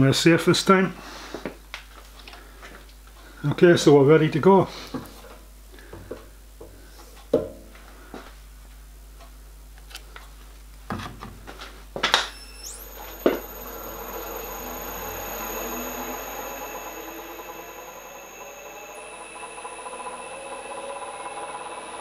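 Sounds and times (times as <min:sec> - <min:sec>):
drill press motor whining: 0:12.2 - 0:22.0.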